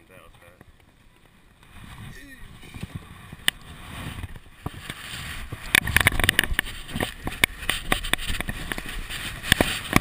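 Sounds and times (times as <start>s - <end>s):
bike clicks and rattling knocks: 4.2s - 10.0s.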